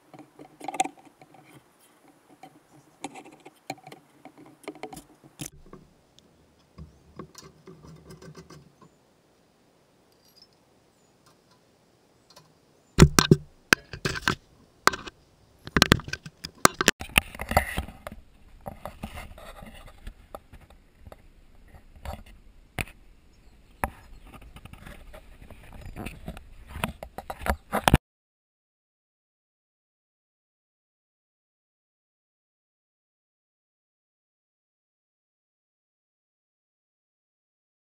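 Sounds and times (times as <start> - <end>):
sharp knocks and scraping: 0.0 - 5.9, 6.6 - 9.0, 12.3 - 28.0
hands handling metal bracket: 0.1 - 5.8.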